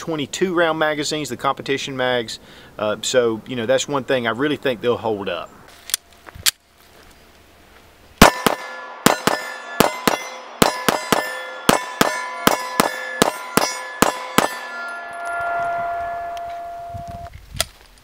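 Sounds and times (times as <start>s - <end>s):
pistol fired rapidly: 8.2s - 14.6s
metallic ringing: 8.2s - 17.3s.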